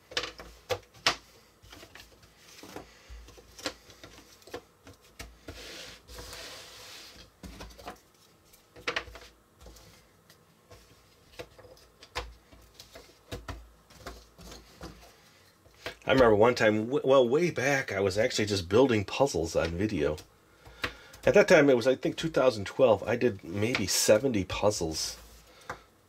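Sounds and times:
puzzle pieces tapping and clicking: 0.1s - 5.3s
puzzle pieces brushing and sliding: 0.1s - 16.3s, 23.0s - 25.9s.

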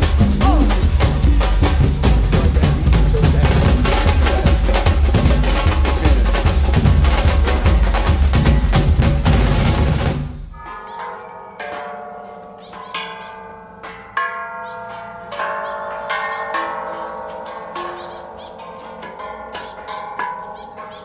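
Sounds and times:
loud music with drums: 0.0s - 10.6s
metal temple bells struck: 10.4s - 21.0s.

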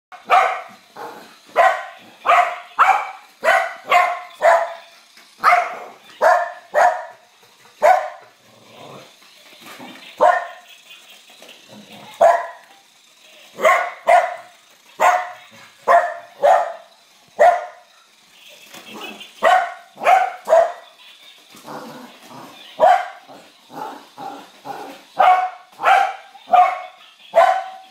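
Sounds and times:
dog barking: 0.2s - 0.7s, 1.6s - 4.8s, 5.4s - 7.1s, 7.8s - 8.2s, 10.2s - 10.6s, 12.2s - 12.6s, 15.0s - 16.8s, 17.4s - 17.8s, 19.4s - 20.8s, 25.2s - 27.8s.

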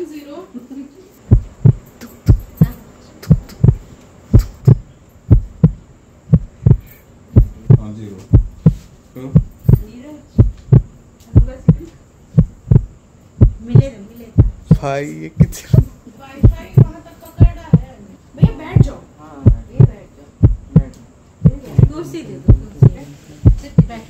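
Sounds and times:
heartbeat thumps: 1.3s - 24.0s.

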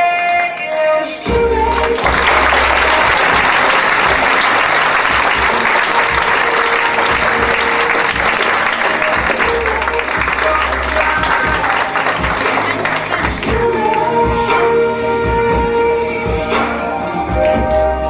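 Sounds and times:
song: 0.0s - 18.0s
audience applauding: 1.7s - 14.2s.

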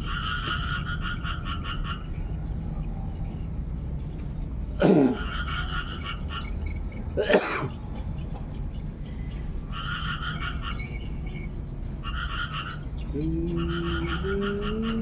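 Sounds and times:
frogs croaking: 0.0s - 15.0s
loud cough: 4.8s - 5.3s, 7.2s - 7.7s.

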